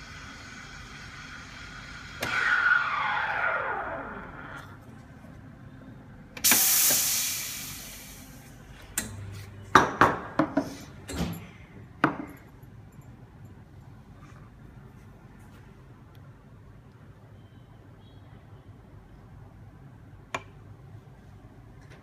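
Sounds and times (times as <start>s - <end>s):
steam wand hissing: 6.4s - 8.4s.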